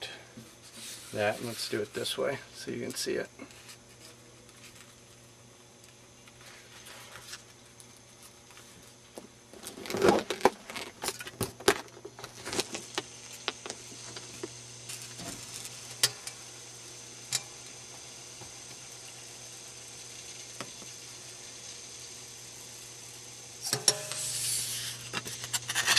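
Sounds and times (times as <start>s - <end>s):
steady low hum: 0.0s - 25.9s
foam sheet crackling and scraping: 9.6s - 11.2s.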